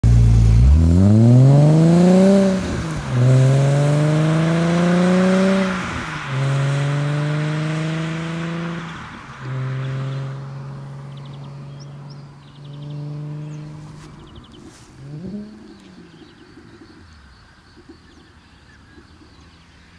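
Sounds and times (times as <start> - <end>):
car exhaust accelerating through gears: 0.0 - 17.2.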